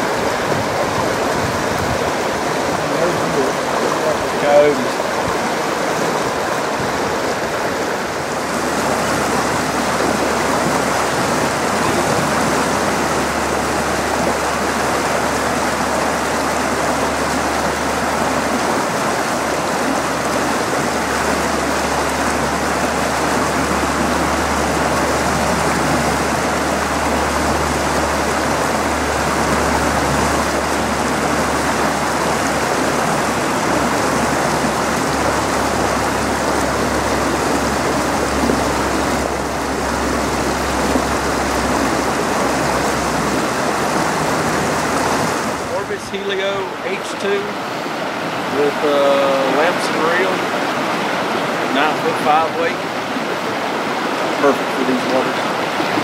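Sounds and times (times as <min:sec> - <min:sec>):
stream rushing over stones: 0:00.0 - 0:56.0.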